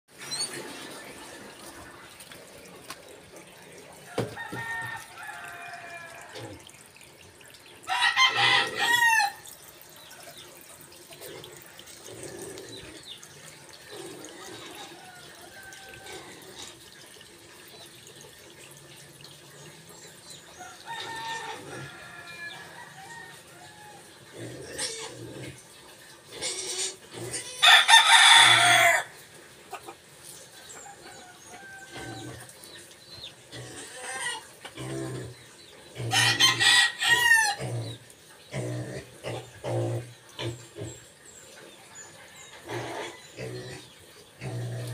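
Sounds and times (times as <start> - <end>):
rooster crowing: 4.1 - 6.4, 7.9 - 9.4, 20.7 - 24.0, 27.6 - 29.1, 36.1 - 37.6
chickens clucking: 29.6 - 44.9.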